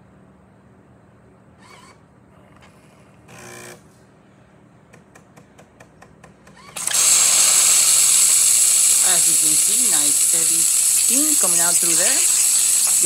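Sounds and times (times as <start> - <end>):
espresso machine buzz: 3.3 - 3.8, 6.8 - 13.0
steam hissing from spout: 7.1 - 13.0.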